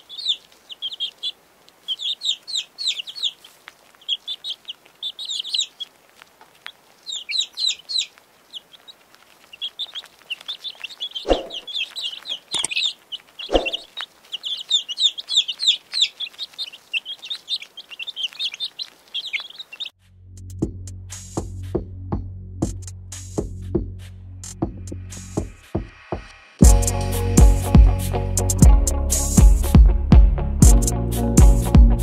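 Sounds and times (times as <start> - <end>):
chicks peeping: 0.0 - 19.9.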